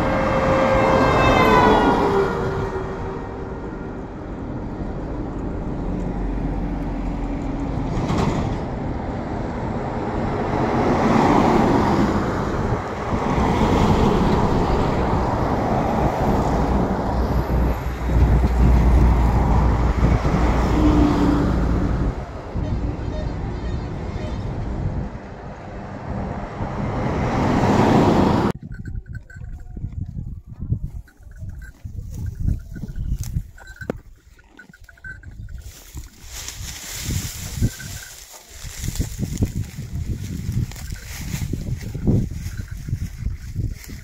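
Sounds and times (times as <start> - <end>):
truck passing: 0.0 - 28.8
vehicles passing: 0.0 - 30.0, 30.6 - 44.0
wind on microphone: 8.7 - 44.0.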